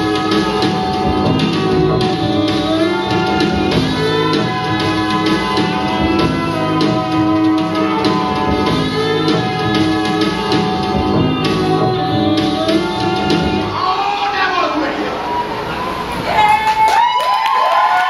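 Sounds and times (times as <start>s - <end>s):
music with instruments and drums: 0.0s - 13.8s.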